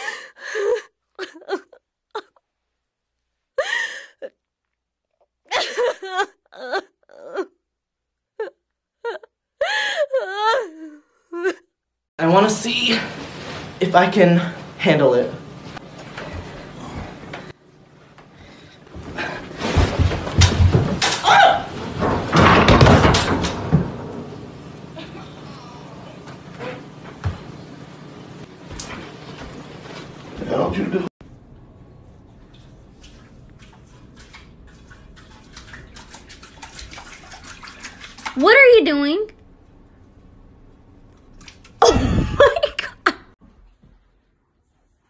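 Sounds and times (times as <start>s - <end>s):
heavy thuds and bangs: 21.8s - 24.6s.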